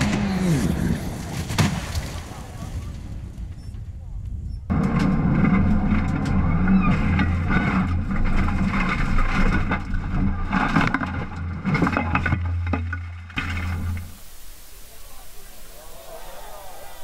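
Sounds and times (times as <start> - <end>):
car crashing through undergrowth: 0.0 - 2.6.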